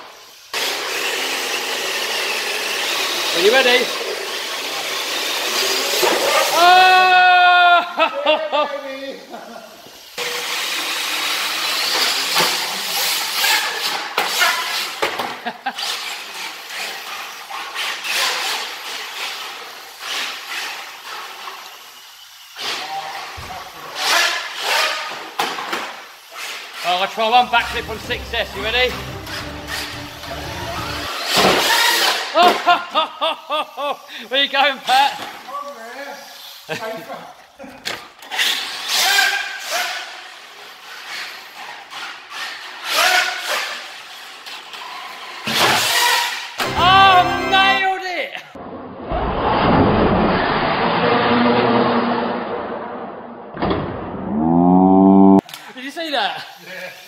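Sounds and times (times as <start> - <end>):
rc truck motor and tyres hissing: 0.0 - 6.3, 9.6 - 15.0, 15.7 - 25.3, 35.7 - 37.0, 38.2 - 46.5.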